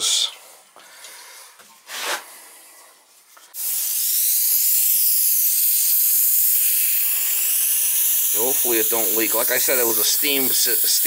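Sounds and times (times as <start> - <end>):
air hissing from radiator valve: 3.6 - 11.0.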